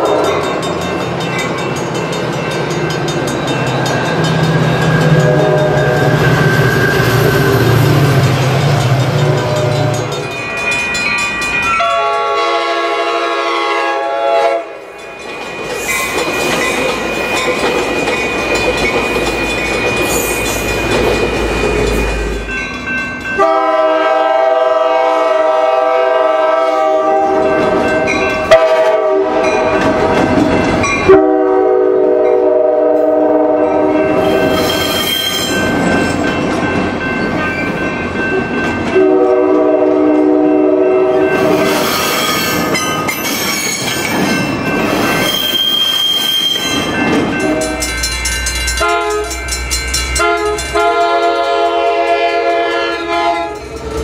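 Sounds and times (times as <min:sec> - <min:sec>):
rumbling train noise: 0:00.0 - 0:54.0
locomotive air horn blasts: 0:05.2 - 0:06.1, 0:11.8 - 0:14.8, 0:23.4 - 0:27.5, 0:28.5 - 0:29.5, 0:31.1 - 0:33.9, 0:39.0 - 0:41.3, 0:48.8 - 0:49.4, 0:50.2 - 0:53.6.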